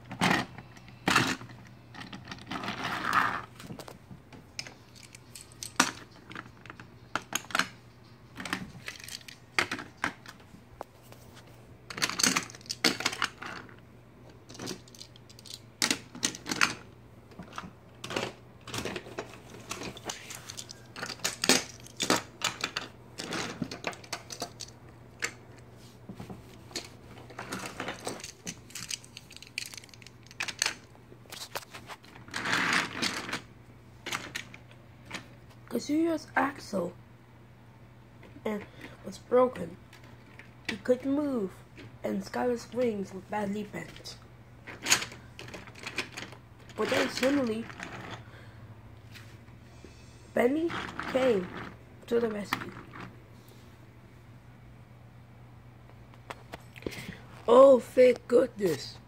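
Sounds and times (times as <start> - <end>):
plastic and metal toys clattering: 4.6 - 7.8, 8.4 - 10.4, 11.9 - 13.8, 14.5 - 25.4, 26.7 - 35.2, 43.7 - 48.3, 50.6 - 53.1.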